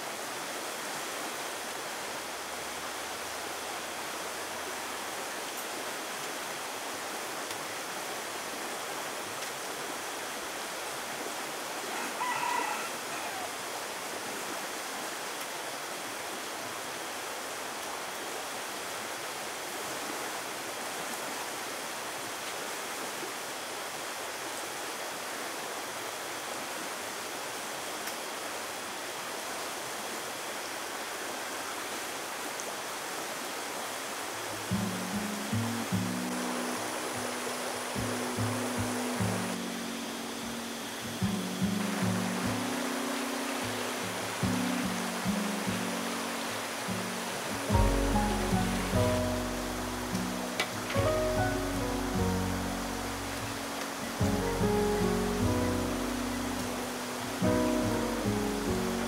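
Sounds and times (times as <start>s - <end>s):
rushing outdoor hiss: 0.0s - 59.0s
rooster crowing: 11.9s - 13.7s.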